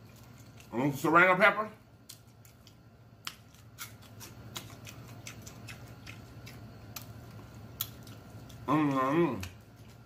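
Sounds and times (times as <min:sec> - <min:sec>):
low steady hum: 0:00.0 - 0:10.0
pepper being crunched and chewed: 0:02.0 - 0:10.0.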